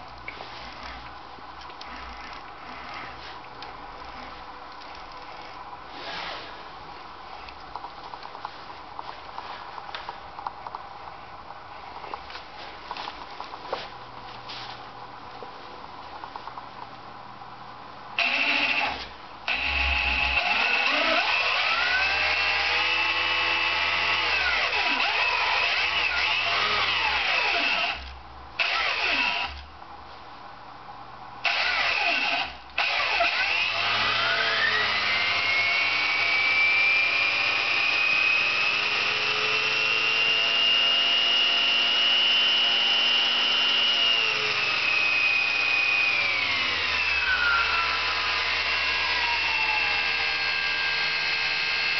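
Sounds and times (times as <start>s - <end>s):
electric motor whine: 18.2s - 29.6s, 31.5s - 51.9s.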